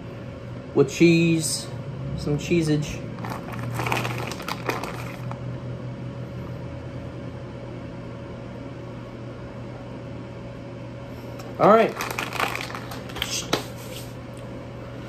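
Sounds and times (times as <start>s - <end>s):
kitchen appliance humming: 0.0s - 15.0s
cheese rustling and tapping: 3.2s - 5.4s, 11.9s - 13.7s.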